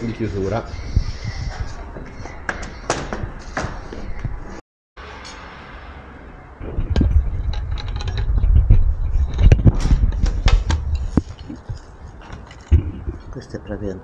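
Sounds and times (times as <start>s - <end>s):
low rubbing rumble: 5.8s - 13.3s
frames clicking and knocking: 6.8s - 12.9s.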